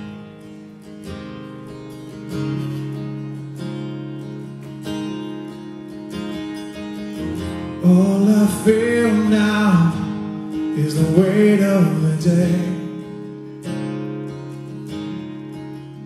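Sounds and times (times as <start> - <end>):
strummed acoustic guitar: 0.0 - 16.0
man singing: 7.7 - 13.2.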